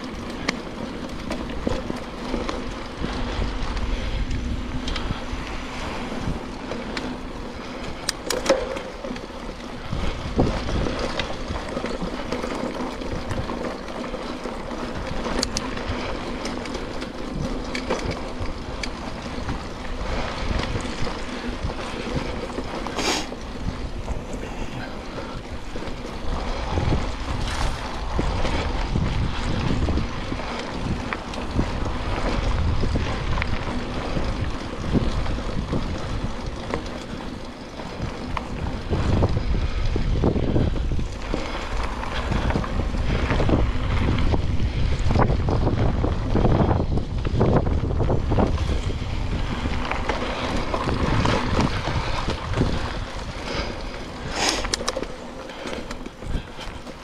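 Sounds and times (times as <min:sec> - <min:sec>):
bike clicks and rattles: 0:00.0 - 0:57.0
bike tyre noise: 0:00.0 - 0:57.0
wind on microphone: 0:00.0 - 0:57.0.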